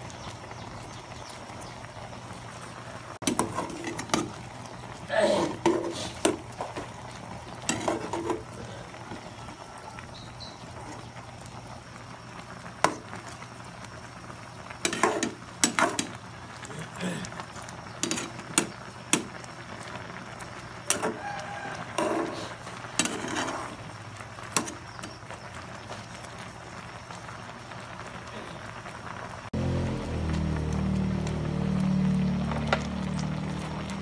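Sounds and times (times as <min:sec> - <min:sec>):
soup bubbling: 0:00.0 - 0:34.0
ladle scraping metal pot: 0:03.2 - 0:04.4, 0:05.4 - 0:06.9, 0:07.6 - 0:08.6, 0:14.8 - 0:16.2, 0:18.0 - 0:18.7, 0:20.9 - 0:23.9.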